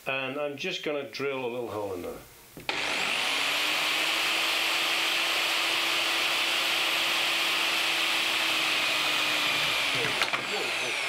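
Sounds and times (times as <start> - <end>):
electric drill motor whine: 2.7 - 11.0.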